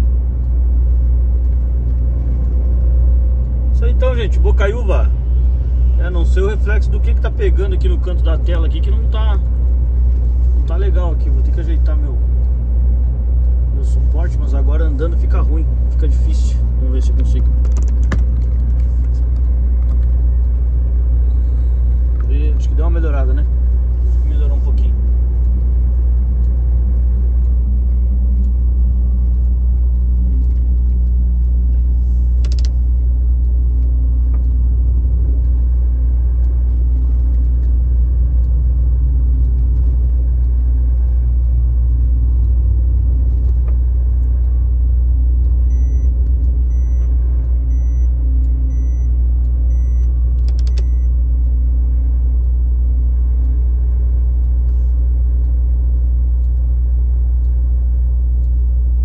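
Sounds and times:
vehicle engine and tyres rumbling: 0:00.0 - 0:59.0
faint beep: 0:45.6 - 0:50.1.

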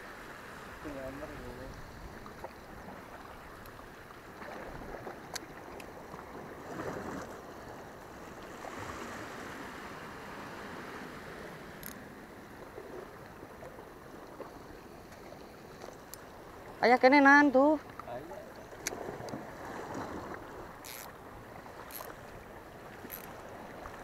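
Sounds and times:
sea water washing against rocks: 0:17.8 - 0:24.0.

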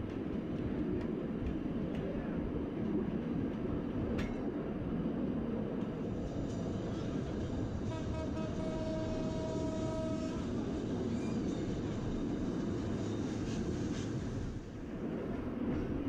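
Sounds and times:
train rumbling along track: 0:00.0 - 0:16.0
train horn: 0:07.8 - 0:10.6.

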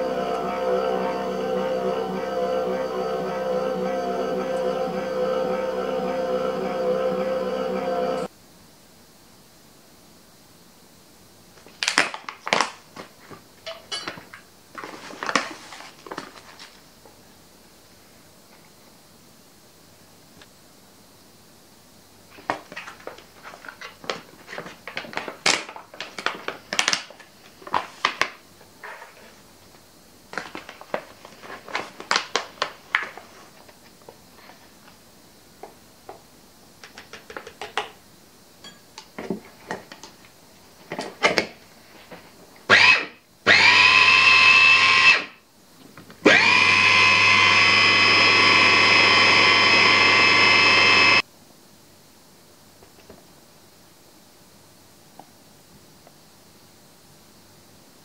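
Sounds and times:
electric chopper motor running: 0:42.7 - 0:45.2, 0:46.3 - 0:51.2.

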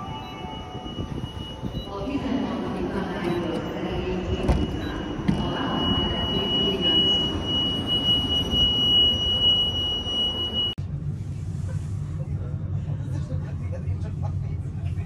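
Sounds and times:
high-pitched electronic tone: 0:00.0 - 0:10.8
train rumbling: 0:00.0 - 0:15.0.

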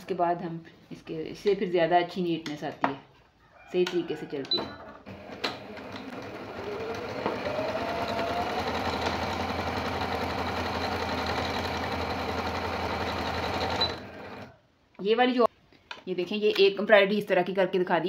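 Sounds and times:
sewing machine motor whine: 0:05.1 - 0:14.5.

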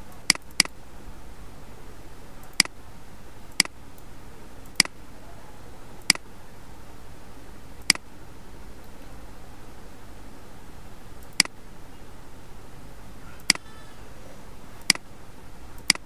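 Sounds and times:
steady low hum: 0:00.0 - 0:16.0
mouse button clicking: 0:03.5 - 0:04.1, 0:11.2 - 0:11.6.

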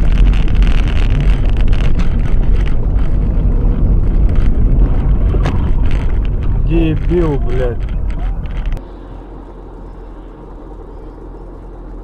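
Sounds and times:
wind buffeting microphone: 0:00.0 - 0:08.8
car engine and road rumble: 0:00.0 - 0:12.0.

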